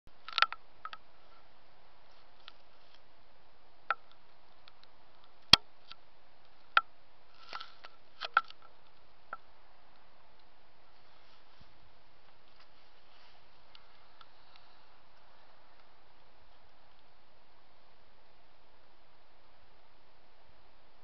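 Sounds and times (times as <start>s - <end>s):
faint hiss: 0.6s - 21.0s.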